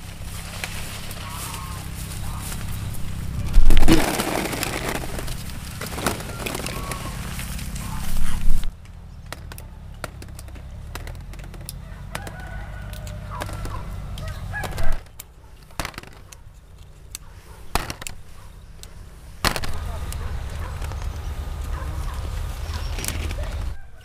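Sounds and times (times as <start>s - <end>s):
chickens clucking: 0.4s - 24.0s
rooster crowing: 5.9s - 8.2s, 11.7s - 15.0s, 21.5s - 24.0s.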